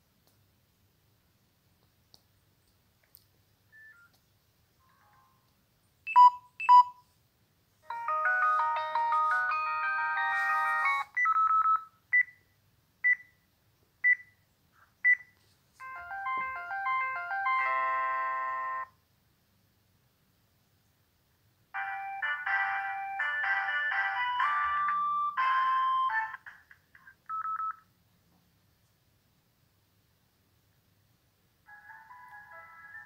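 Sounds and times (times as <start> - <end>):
short melodic phone chime: 7.9 - 11.1, 15.8 - 18.8
phone alert beeps: 7.9 - 12.3.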